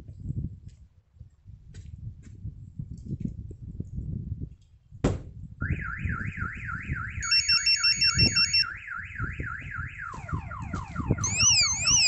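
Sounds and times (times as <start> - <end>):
thump on van body: 5.0 - 5.4
warbling alarm siren: 5.6 - 12.0
alternating beep melody: 7.2 - 8.7, 11.2 - 12.0.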